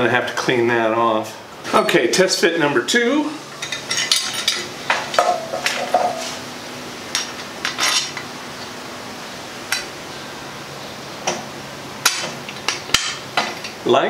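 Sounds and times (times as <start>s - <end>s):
metal parts clinking: 7.7s - 8.2s.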